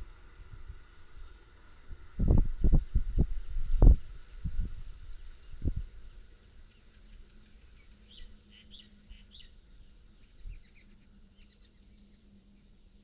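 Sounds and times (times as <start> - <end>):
faint low hum: 0.0 - 13.0
birds chirping: 5.2 - 12.7.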